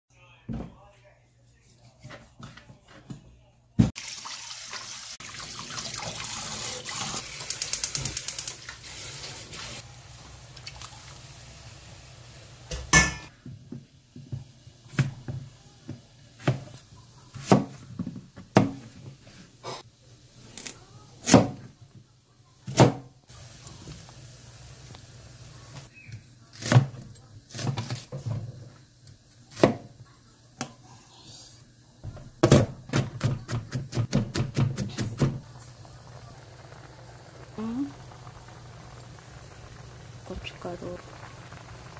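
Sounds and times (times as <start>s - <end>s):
tap water running into steel bowl: 4.0s - 9.8s.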